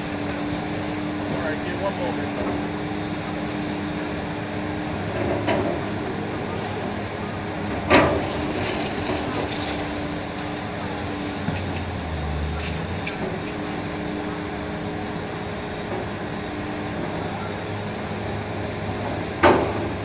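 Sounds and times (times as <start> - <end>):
excavator engine and hydraulics: 0.0 - 20.0
falling debris clatter: 7.8 - 14.2
concrete cracking: 7.9 - 13.6
deep rumble: 10.8 - 14.0.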